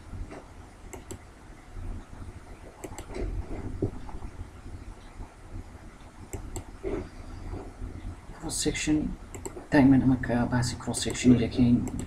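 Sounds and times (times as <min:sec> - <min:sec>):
low background rumble: 0:00.0 - 0:12.0
computer mouse clicks: 0:00.9 - 0:01.2, 0:02.8 - 0:04.0, 0:06.3 - 0:06.8, 0:09.3 - 0:09.7, 0:11.8 - 0:12.0.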